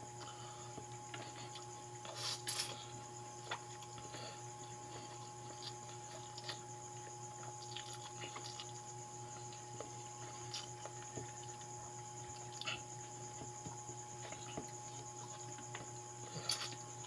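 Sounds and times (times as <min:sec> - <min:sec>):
steady hum: 0:00.0 - 0:17.0
wet chewing and lip smacks: 0:07.4 - 0:11.7.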